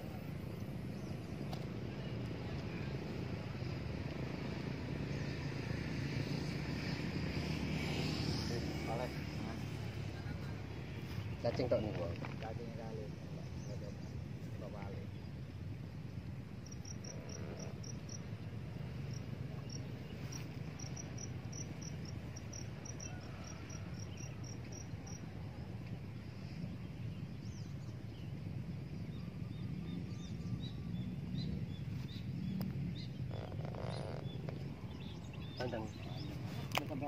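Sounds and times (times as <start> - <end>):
steady low rumble: 8.9 - 23.0
cricket-like insect chirping: 16.5 - 25.3.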